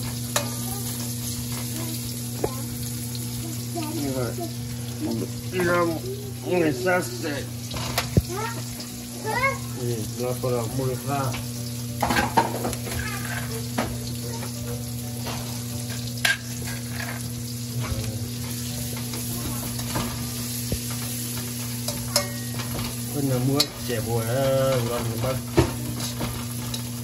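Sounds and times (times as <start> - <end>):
food sizzling in hot oil: 0.0 - 27.0
spatula scraping wok: 15.4 - 17.6.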